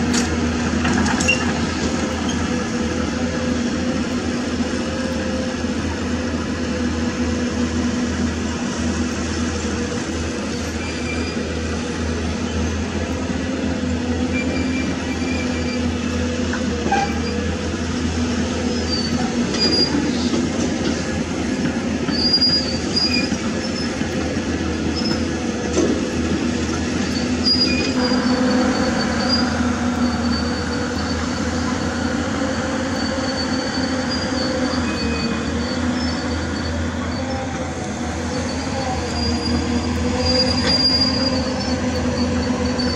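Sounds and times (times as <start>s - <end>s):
excavator diesel engine running: 0.0s - 42.9s
short high squeaks: 10.5s - 11.6s, 14.3s - 16.1s, 27.0s - 32.0s, 32.8s - 42.9s.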